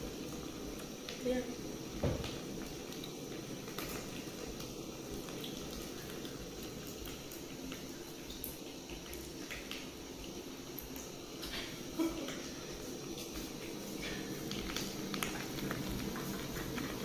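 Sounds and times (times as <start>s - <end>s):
pot of water boiling: 0.0s - 17.0s
knock: 2.0s - 2.3s.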